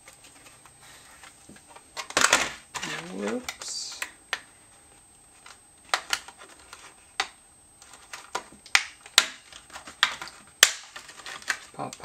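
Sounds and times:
plastic packaging clicking and snapping: 1.5s - 4.5s, 5.4s - 12.0s.

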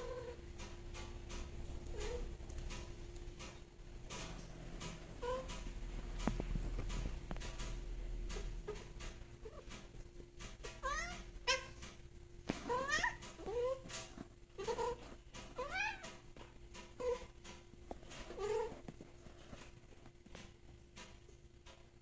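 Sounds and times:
cat meowing: 10.7s - 11.8s, 12.7s - 13.8s.

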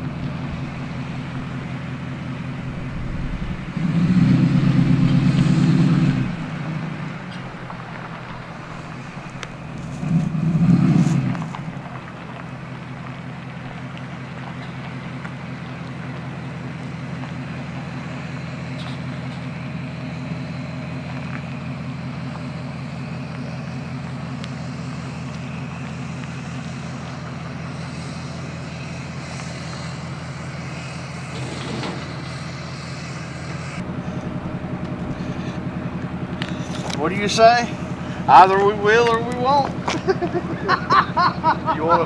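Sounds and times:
truck engine idling: 0.0s - 42.0s.

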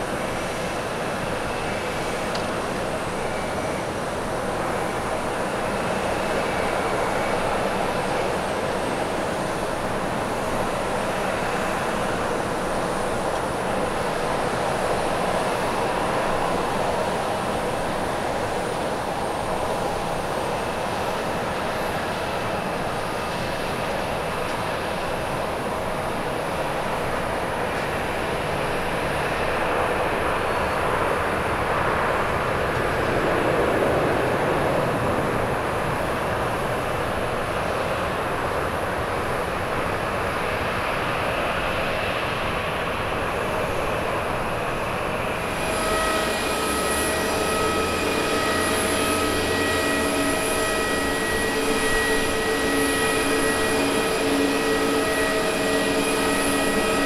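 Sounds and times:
jet engines whining while taxiing: 0.0s - 57.0s
distant jet roar: 26.5s - 38.5s, 39.1s - 57.0s.

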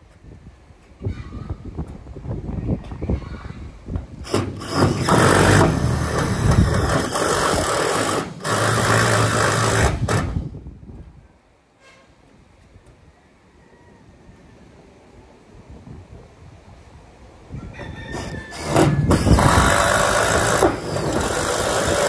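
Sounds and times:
power drill driving screw into metal: 4.2s - 10.5s, 18.1s - 22.0s.

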